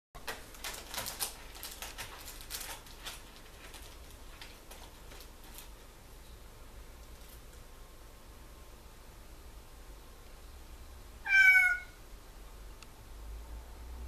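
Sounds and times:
cat rustling in cabinet: 0:00.2 - 0:06.0.

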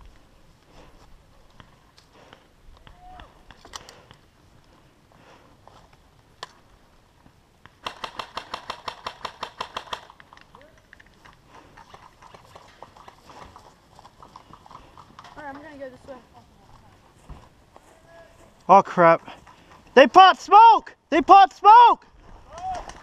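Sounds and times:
rifle shots: 0:07.8 - 0:10.2.

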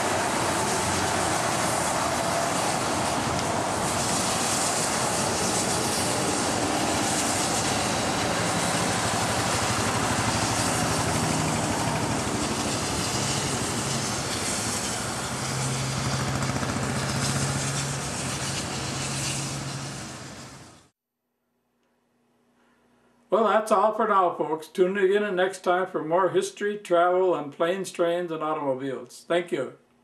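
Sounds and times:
steam locomotive passing: 0:00.0 - 0:20.9.

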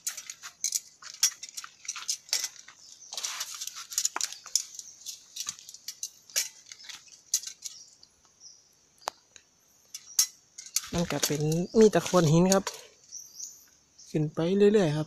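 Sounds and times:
footsteps over rocks and leaves: 0:00.0 - 0:07.7, 0:10.8 - 0:12.8.

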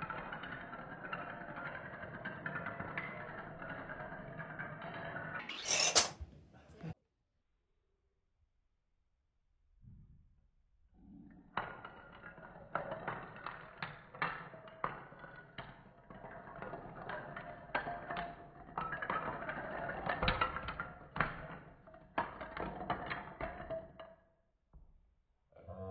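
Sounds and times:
wooden blocks toppling clatter: 0:00.0 - 0:06.2, 0:11.6 - 0:24.2.

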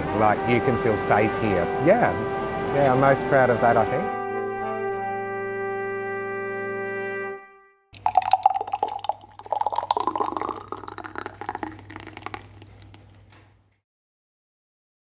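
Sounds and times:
liquid pouring into glass: 0:08.0 - 0:13.3.

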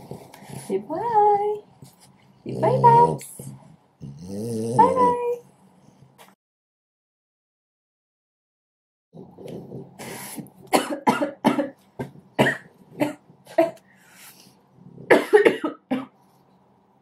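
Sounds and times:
woman coughing: 0:10.7 - 0:11.8, 0:12.4 - 0:13.8, 0:15.1 - 0:16.1.

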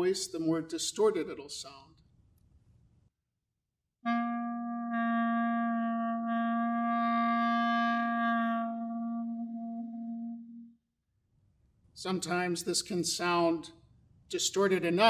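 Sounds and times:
clarinet holding low note: 0:04.0 - 0:10.8
person singing into clarinet: 0:04.0 - 0:10.8.

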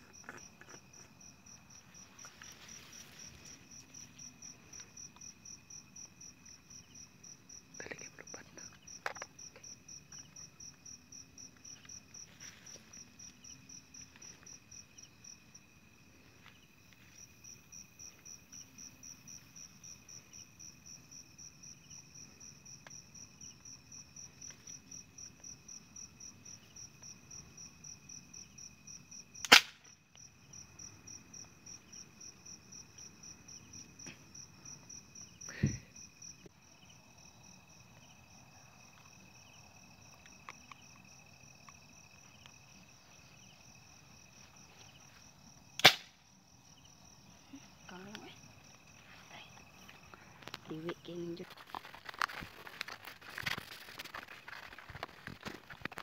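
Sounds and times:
crickets chirping: 0:00.0 - 0:56.0
loud sharp crack: 0:29.4 - 0:29.9, 0:45.8 - 0:46.2.

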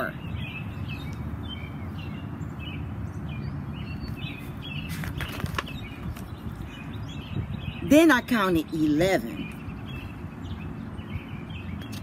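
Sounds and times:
outdoor background rumble: 0:00.0 - 0:12.0
small birds chirping: 0:00.0 - 0:12.0
book page turning: 0:04.9 - 0:06.3.

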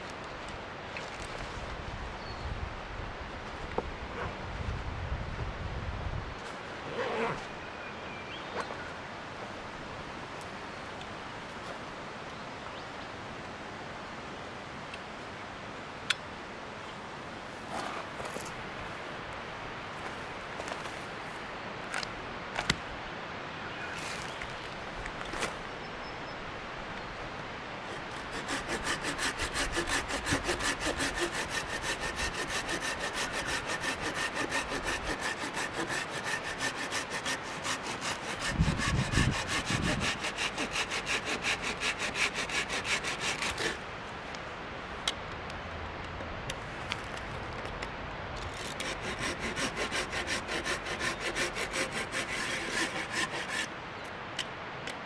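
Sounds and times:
pruning saw cutting branch: 0:27.9 - 0:43.8, 0:48.4 - 0:53.7.

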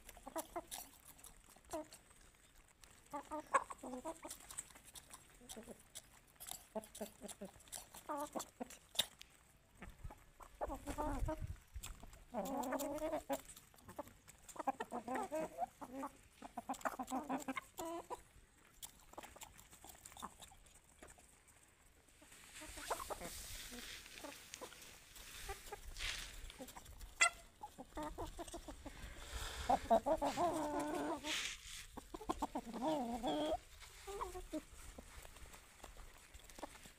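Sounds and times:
chickens clucking: 0:00.0 - 0:36.9
rooster pecking grain: 0:00.0 - 0:36.9
rustling: 0:21.0 - 0:36.9.

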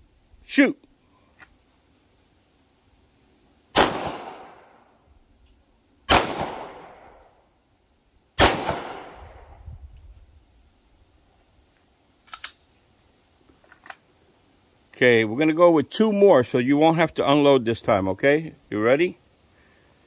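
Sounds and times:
pistol shots with echo: 0:03.8 - 0:04.6, 0:06.1 - 0:07.2, 0:08.4 - 0:09.4.

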